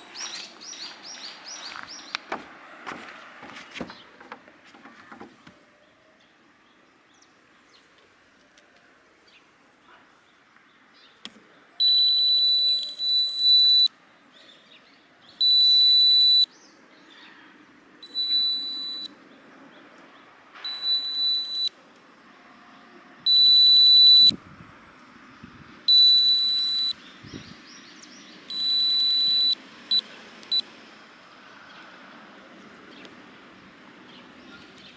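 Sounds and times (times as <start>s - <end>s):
short electronic blips: 18.0s - 19.1s, 20.6s - 21.7s, 23.3s - 24.4s, 25.9s - 27.0s, 28.5s - 30.7s.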